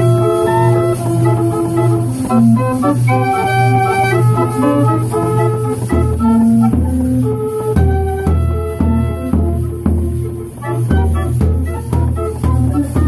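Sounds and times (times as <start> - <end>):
band organ playing: 0.0 - 13.0.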